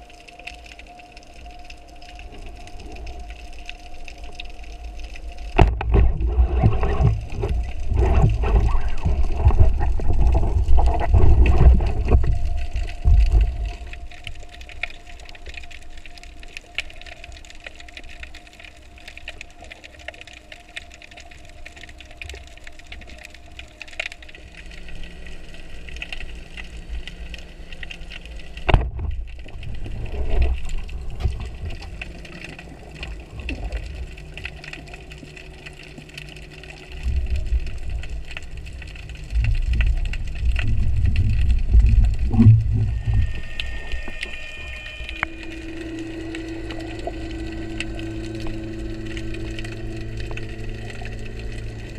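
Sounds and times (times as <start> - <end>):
faint steady hum: 0.0 - 51.9
water churning: 0.0 - 51.9
underwater hiss: 42.2 - 51.9.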